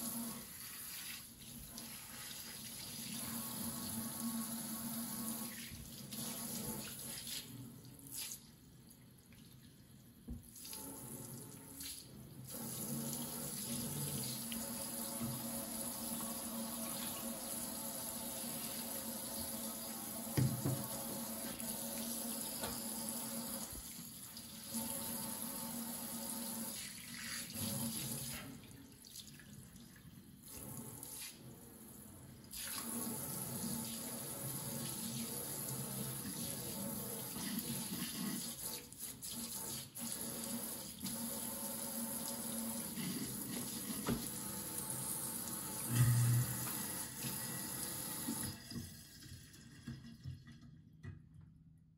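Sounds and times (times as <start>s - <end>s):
faucet running into metal sink: 10.6s - 29.4s, 32.6s - 50.8s.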